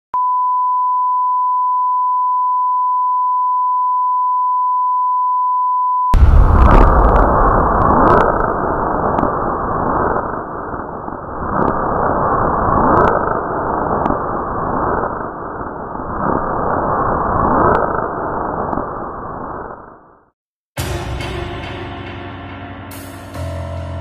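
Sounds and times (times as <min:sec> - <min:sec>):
loud steady rushing noise: 0:06.2 - 0:14.2
falling whoosh: 0:06.2 - 0:20.1.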